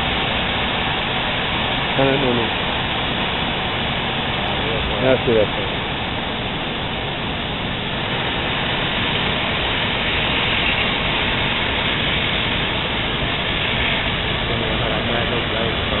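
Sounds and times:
hiss of gas cutting torches: 8.1 - 16.0.

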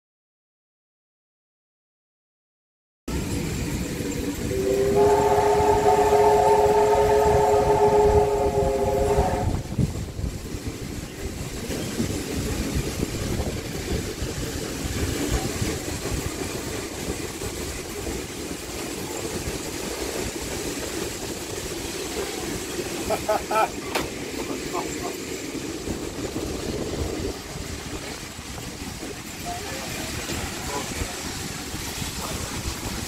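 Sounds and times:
steam train rumble: 3.1 - 33.0
steam locomotive whistle: 4.4 - 9.8, 29.3 - 31.0.

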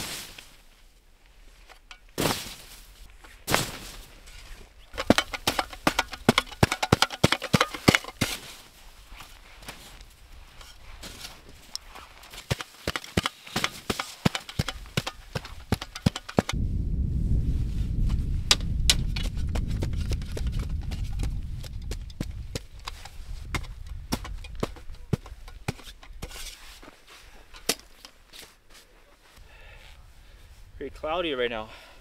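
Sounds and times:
snow shovel chopping packed snow: 0.0 - 0.6, 2.2 - 2.9, 3.5 - 4.2, 5.0 - 16.6
low rumble: 16.6 - 24.2.

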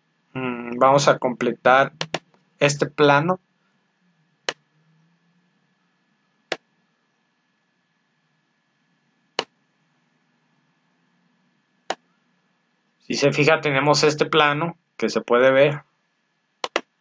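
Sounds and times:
computer mouse clicks: 1.9 - 2.4, 16.6 - 16.9.

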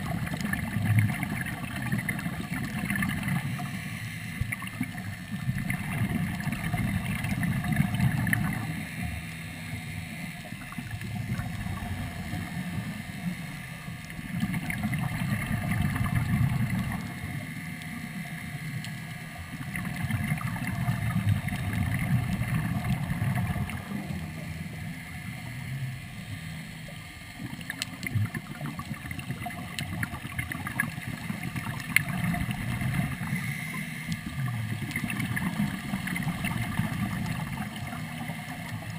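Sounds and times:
exhaled bubbles rumbling: 0.0 - 9.2, 9.8 - 38.9
faint steady hum: 0.0 - 38.9
diver breathing underwater: 32.7 - 34.5.

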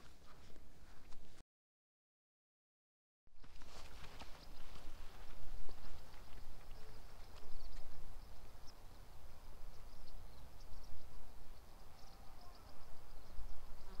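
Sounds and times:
insects chirping: 5.2 - 14.0.

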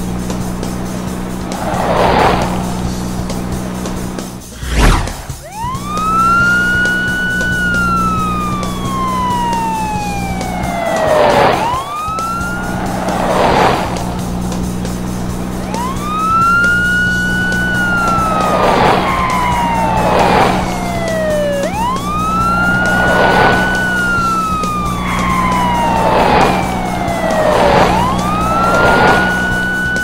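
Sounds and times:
low drone: 0.0 - 30.0
short rushing swells: 4.4 - 5.5
cartoon police siren wail: 4.8 - 30.0.

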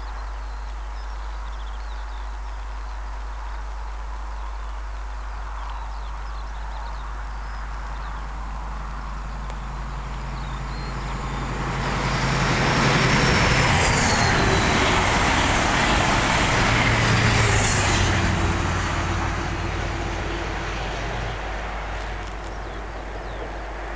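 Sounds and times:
diesel train passing: 8.5 - 23.9.

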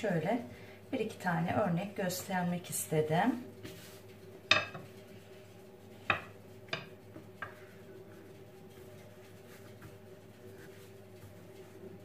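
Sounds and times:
faint steady hum: 0.0 - 12.0
rolling pin knocking on countertop: 4.5 - 4.9, 6.1 - 7.6.

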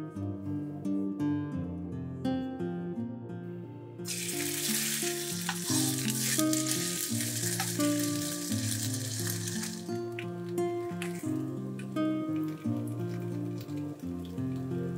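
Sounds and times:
soft plucked guitar music: 0.0 - 14.9
ham sizzling in oil: 4.1 - 14.0.

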